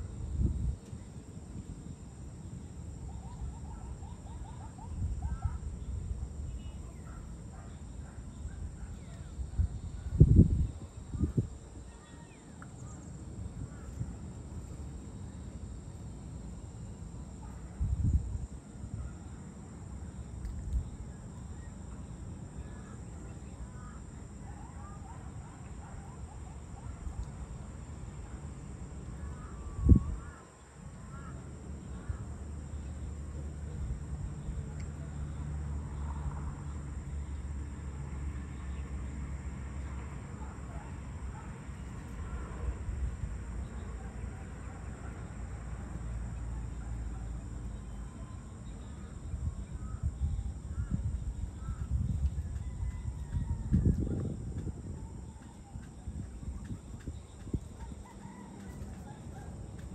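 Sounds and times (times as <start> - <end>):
wind rumble on microphone: 0.0 - 15.1, 16.6 - 30.4, 41.8 - 44.2, 48.3 - 59.9.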